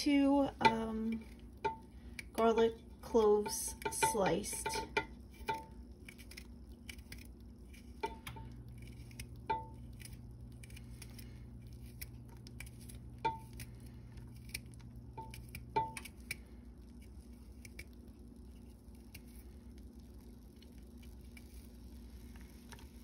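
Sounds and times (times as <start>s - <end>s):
utensil clinking against metal pot: 3.2s - 5.6s.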